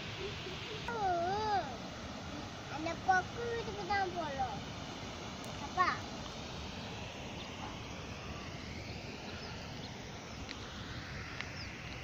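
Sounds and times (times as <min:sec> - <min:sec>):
birds calling overhead: 0:05.5 - 0:12.0.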